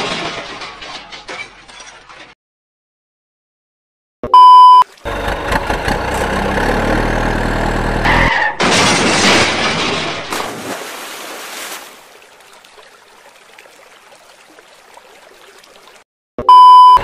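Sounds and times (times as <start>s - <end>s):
loud beep: 4.3s - 4.8s, 16.4s - 17.0s
truck engine running: 4.9s - 8.3s.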